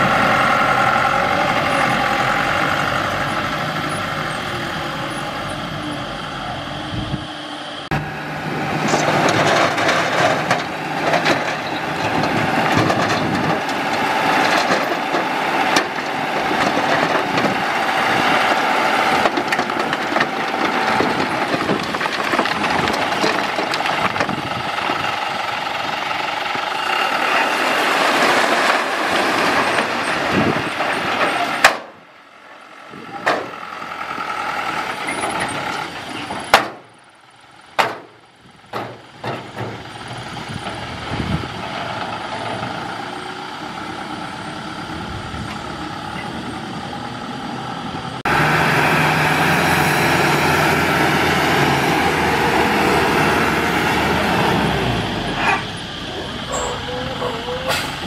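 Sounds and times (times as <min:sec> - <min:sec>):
diesel truck engine running: 0:00.0 - 0:58.0
rocky soil sliding out: 0:08.6 - 0:25.1, 0:26.6 - 0:31.6.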